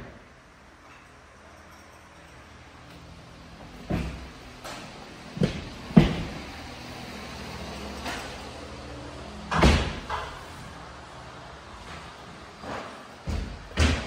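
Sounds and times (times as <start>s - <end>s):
knocks and thuds in empty room: 3.7s - 4.5s, 5.3s - 6.6s, 11.8s - 14.0s.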